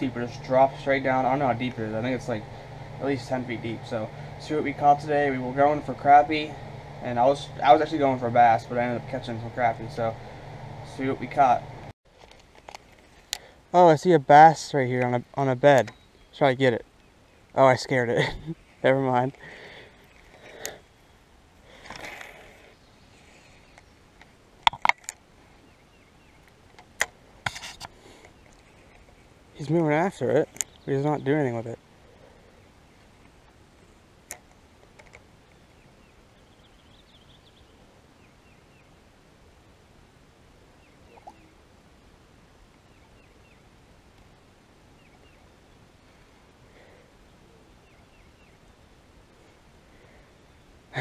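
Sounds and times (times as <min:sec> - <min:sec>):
faint outdoor background: 0:00.0 - 0:51.0
bird chirping: 0:15.5 - 0:20.9, 0:25.5 - 0:26.5, 0:28.2 - 0:31.9, 0:35.4 - 0:39.0, 0:40.8 - 0:41.6, 0:42.8 - 0:43.7, 0:44.9 - 0:46.1, 0:46.9 - 0:49.5.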